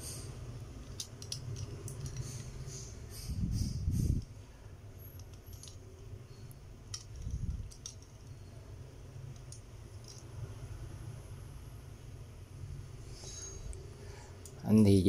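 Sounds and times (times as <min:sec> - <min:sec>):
small clicks of plastic toy handling: 0:00.8 - 0:02.5, 0:06.9 - 0:08.4, 0:09.3 - 0:10.2.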